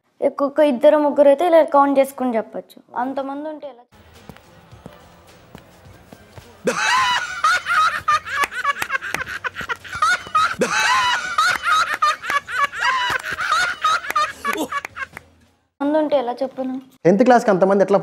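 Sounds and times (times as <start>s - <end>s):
men laughing loudly: 6.6s - 15.2s.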